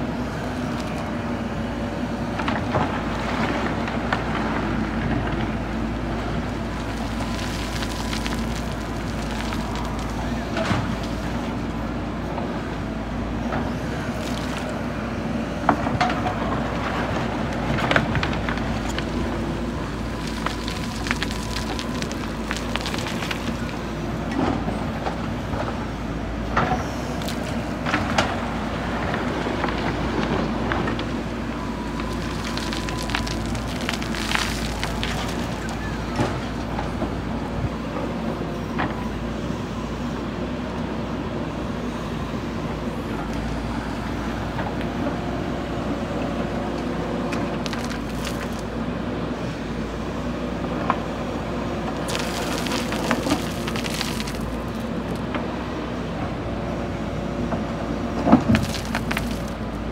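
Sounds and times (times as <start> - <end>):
diesel engine running: 0.0 - 59.9
rush of tipped gravel: 6.4 - 11.4, 13.8 - 14.8, 18.3 - 24.0, 26.9 - 28.1, 31.7 - 36.2, 47.5 - 48.7, 51.9 - 55.2, 58.4 - 59.9
stones crunching and knocking: 6.6 - 11.3, 14.0 - 14.8, 18.0 - 24.0, 27.1 - 28.2, 31.8 - 36.4, 47.4 - 48.7, 51.9 - 55.4, 58.4 - 59.8.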